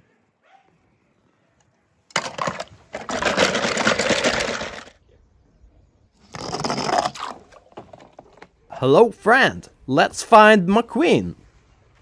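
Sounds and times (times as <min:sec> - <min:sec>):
small hard objects clattering: 0:02.1 - 0:05.0, 0:06.2 - 0:08.6.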